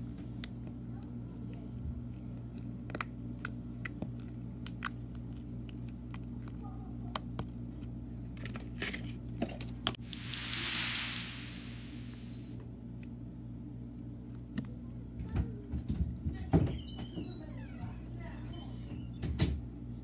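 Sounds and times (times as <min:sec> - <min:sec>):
low hum: 0:10.0 - 0:12.6.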